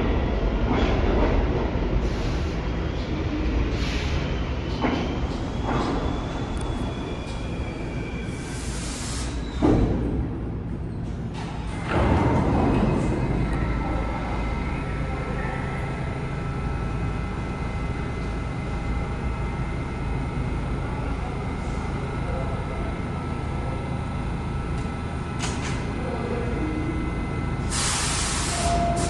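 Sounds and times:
subway train humming: 0:00.0 - 0:29.0
air hiss: 0:08.4 - 0:09.4, 0:27.6 - 0:28.8.

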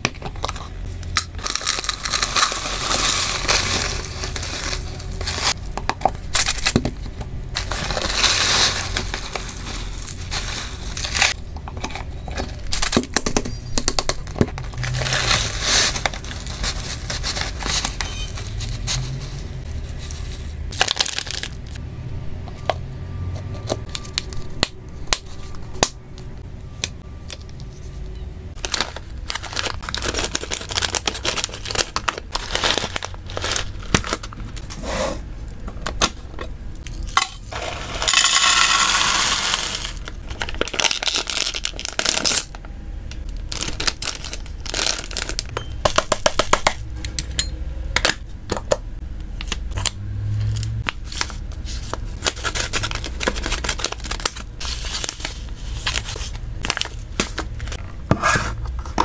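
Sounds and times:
plastic bag rustling: 0:00.3 - 0:11.4, 0:14.2 - 0:21.8, 0:28.6 - 0:34.8, 0:37.4 - 0:42.6, 0:43.4 - 0:46.1, 0:51.0 - 0:59.0
plastic bag tearing: 0:00.4 - 0:05.6, 0:20.7 - 0:21.8, 0:28.6 - 0:34.6, 0:37.5 - 0:42.6, 0:43.5 - 0:46.5, 0:52.2 - 0:57.8.

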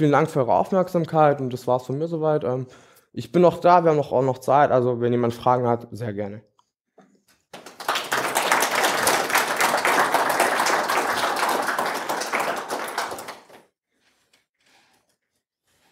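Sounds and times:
audience applauding: 0:07.5 - 0:13.7.

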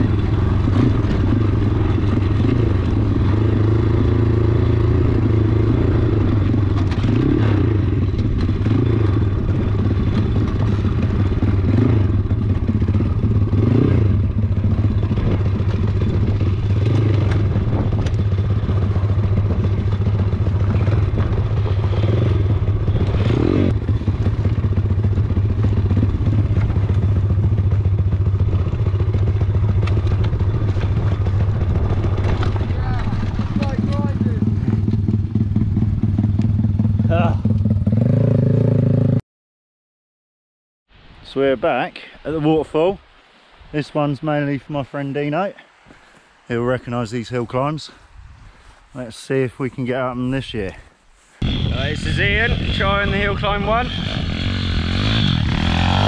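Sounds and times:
bike knocking and rattling: 0:00.0 - 0:37.8
motorbike engine running: 0:00.0 - 0:39.2, 0:51.4 - 0:56.0.

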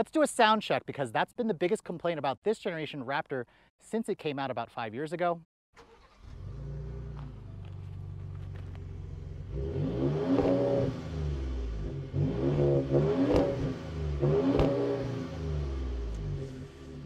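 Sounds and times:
truck engine idling and revving: 0:05.9 - 0:17.0.

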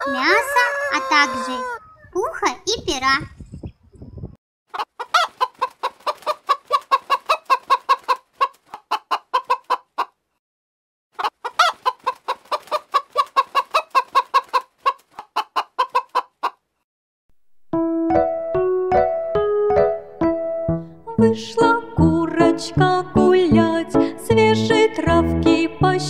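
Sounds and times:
hens clucking: 0:00.0 - 0:02.0, 0:04.7 - 0:10.2, 0:11.2 - 0:16.6.

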